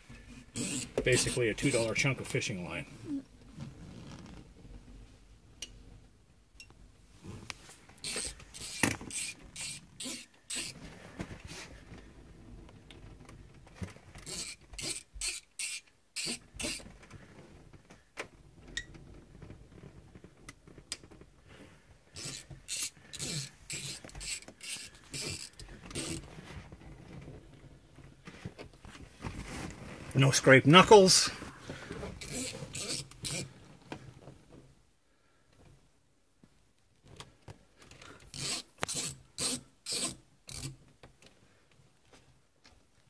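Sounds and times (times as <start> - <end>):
line sawing through adhesive: 0.6 - 1.9, 8.1 - 10.8, 22.2 - 26.2, 38.4 - 40.7.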